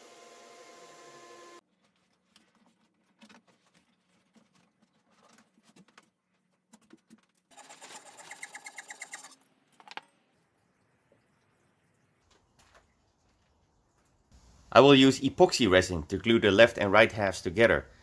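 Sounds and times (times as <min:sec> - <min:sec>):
scratchy rasping with ticking: 0:06.8 - 0:09.4.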